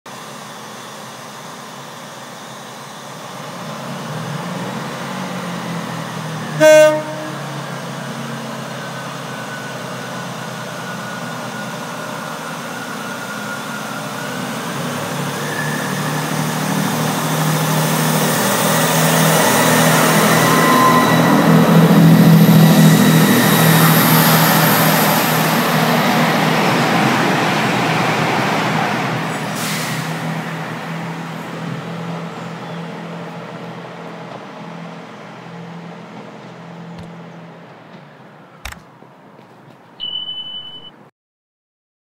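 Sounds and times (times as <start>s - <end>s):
diesel train engines humming: 0.1s - 40.9s
train horn blast: 6.5s - 7.7s.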